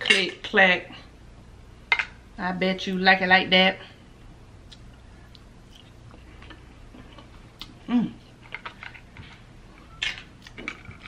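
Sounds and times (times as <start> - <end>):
chewing mouth sounds: 4.7 - 7.9.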